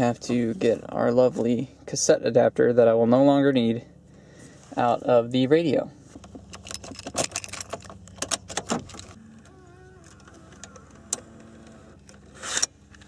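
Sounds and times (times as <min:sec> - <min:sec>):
car keys jangling: 0:06.4 - 0:09.2.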